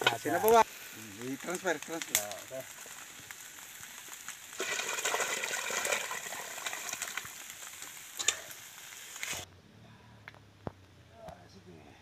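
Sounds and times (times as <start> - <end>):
liquid splashing into pot: 4.5 - 8.6.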